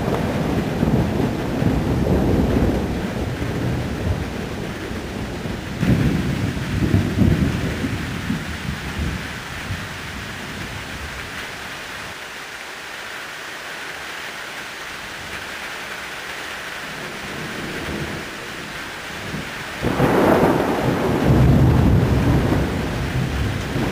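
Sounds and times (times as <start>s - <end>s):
thunder rolling: 0.0s - 10.7s, 19.1s - 23.9s
heavy rain hissing: 0.0s - 23.9s.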